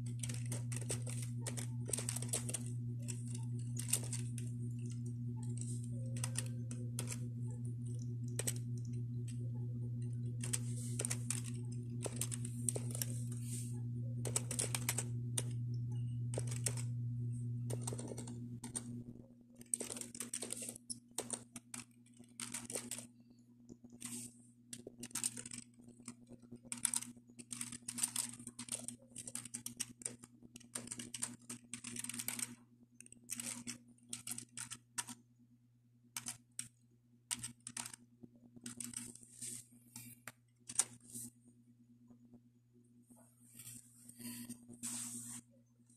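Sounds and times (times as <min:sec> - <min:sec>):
typing on a computer keyboard: 0:00.0 - 0:13.4, 0:14.2 - 0:16.9, 0:17.7 - 0:23.1, 0:23.9 - 0:35.2, 0:36.2 - 0:36.7, 0:37.3 - 0:39.2, 0:40.0 - 0:41.0
steady low hum: 0:00.0 - 0:45.9.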